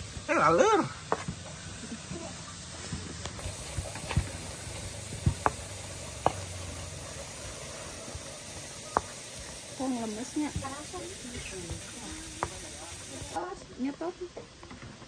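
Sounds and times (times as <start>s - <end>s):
pestle grinding in a mortar: 2.9s - 7.2s.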